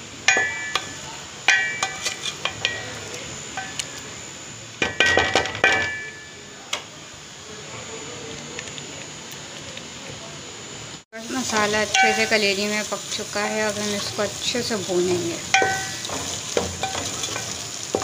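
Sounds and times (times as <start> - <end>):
spoon clinking against metal pot: 0.3 - 2.9, 11.9 - 12.4, 15.5 - 18.0.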